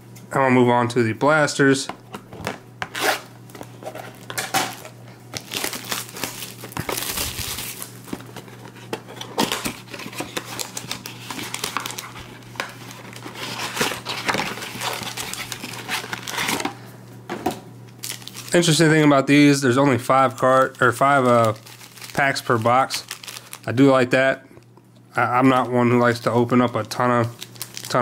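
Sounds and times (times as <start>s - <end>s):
plastic wrapping crinkling and tearing: 2.9s - 16.8s, 18.0s - 18.8s, 20.2s - 23.9s, 25.4s - 28.0s.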